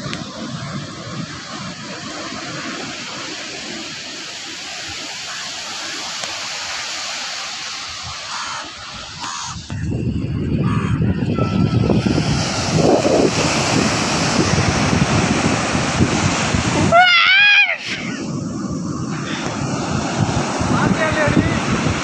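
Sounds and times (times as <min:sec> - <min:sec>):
sea surf breaking on beach: 0:00.0 - 0:09.8, 0:11.1 - 0:22.0
wind buffeting microphone: 0:07.9 - 0:22.0.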